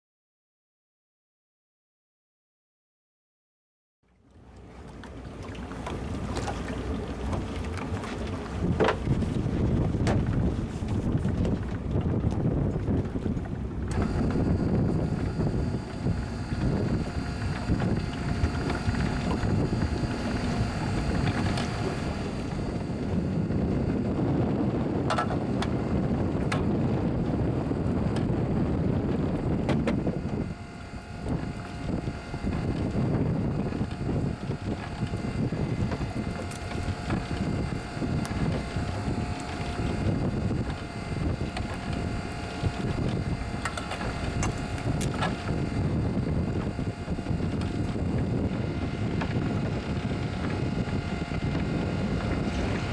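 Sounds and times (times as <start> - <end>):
wind noise on microphone: 4.8 - 52.9
electric motor whine: 12.6 - 52.9.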